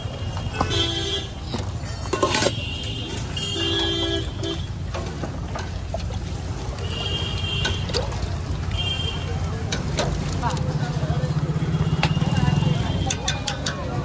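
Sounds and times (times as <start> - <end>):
traffic rumble: 0.0 - 14.0
vehicle horns honking: 0.5 - 1.4, 2.2 - 4.8, 6.8 - 8.0, 8.7 - 9.4.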